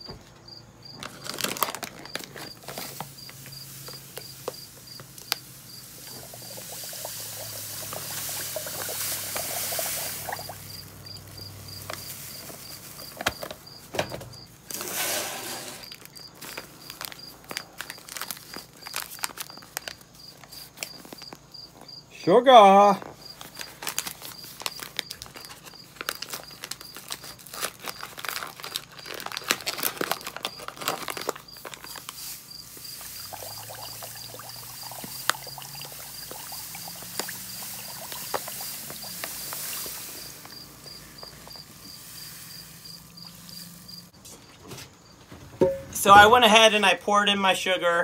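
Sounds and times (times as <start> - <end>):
cricket chirping: 0.0 - 14.6, 15.5 - 45.9
paper bag rustling: 0.9 - 21.4, 22.9 - 36.1, 36.9 - 46.5
sugar pouring hiss: 2.6 - 13.2, 14.7 - 16.0, 31.4 - 44.1.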